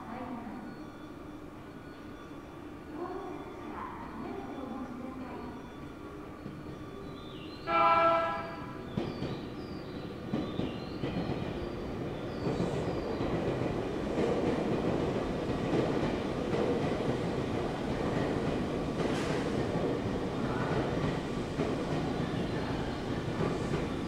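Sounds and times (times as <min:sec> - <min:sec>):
train wheels rumbling on rail: 0:06.2 - 0:24.0.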